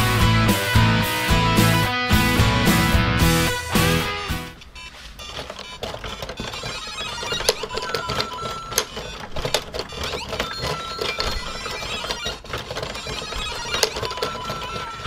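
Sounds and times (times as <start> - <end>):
toy electronic beeps: 4.8 - 15.0
plastic gears clicking and rattling: 5.2 - 15.0.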